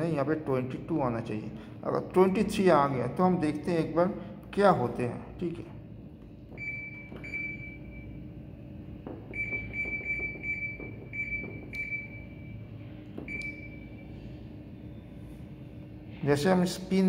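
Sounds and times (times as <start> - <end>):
control panel beeping: 6.5 - 8.2, 9.3 - 12.6, 13.2 - 14.0.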